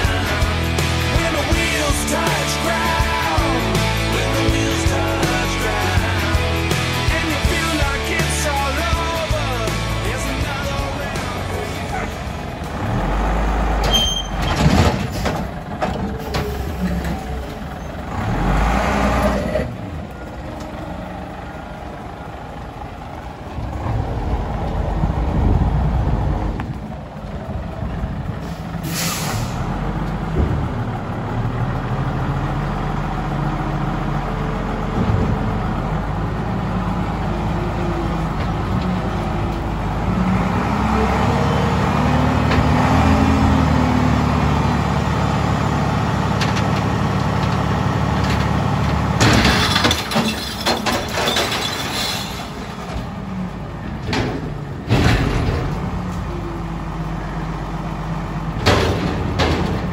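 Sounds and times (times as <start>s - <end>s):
diesel truck engine running: 0.0s - 59.9s
air brake hiss: 28.4s - 29.7s.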